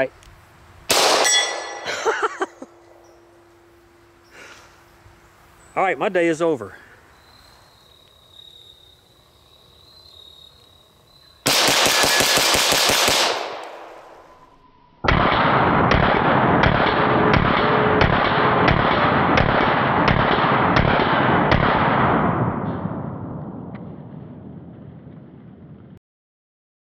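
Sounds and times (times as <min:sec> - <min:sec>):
pistol gunfire: 0:00.9 - 0:01.8, 0:11.5 - 0:14.1, 0:15.1 - 0:23.0.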